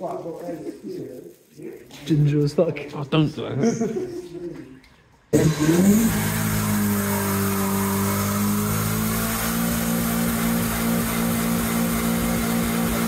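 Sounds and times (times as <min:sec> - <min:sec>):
car engine revving: 0:05.4 - 0:13.0.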